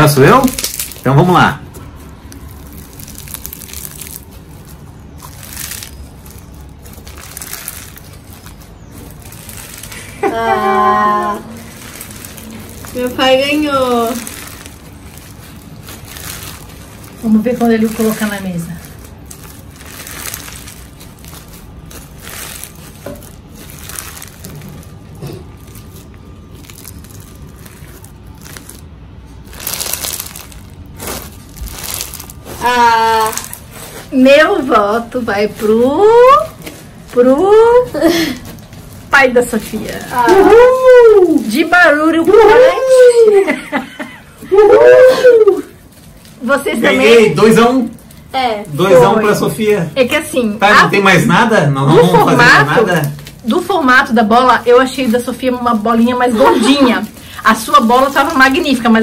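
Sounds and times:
crunchy slime crackling and popping: 0:00.0 - 0:59.0.

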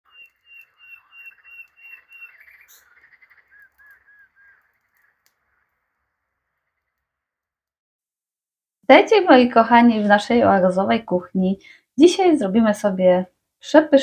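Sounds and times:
birds singing: 0:00.0 - 0:07.3.

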